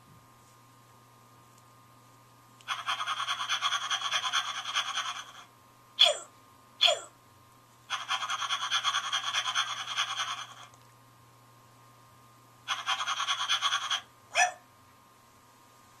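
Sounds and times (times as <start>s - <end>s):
toy puppy electronic panting: 2.6s - 6.2s, 7.9s - 10.7s, 12.7s - 14.1s
toy puppy electronic bark: 12.7s - 14.6s.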